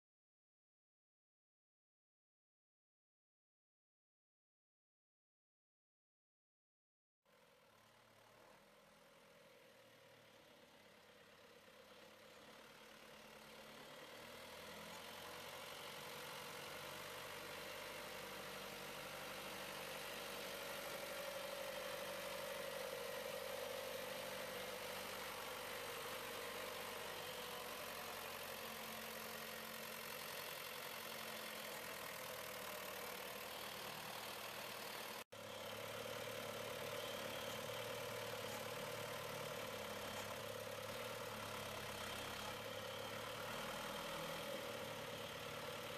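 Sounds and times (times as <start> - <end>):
tractor diesel engine running: 9.7 - 45.9.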